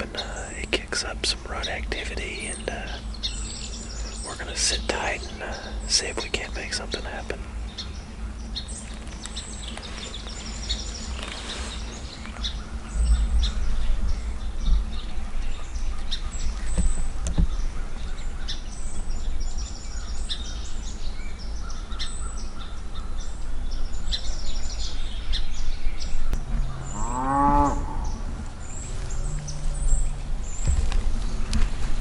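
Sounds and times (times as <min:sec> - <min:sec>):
small birds chirping: 0:00.0 - 0:32.0
low rumble: 0:11.9 - 0:17.7, 0:23.6 - 0:32.0.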